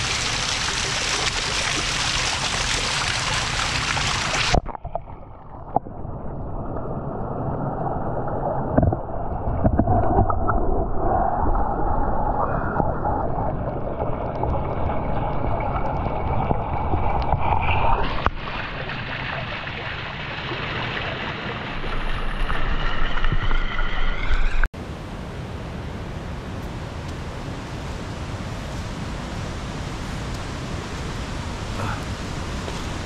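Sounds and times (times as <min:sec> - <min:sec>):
muffled underwater rumble: 0:04.2 - 0:24.7.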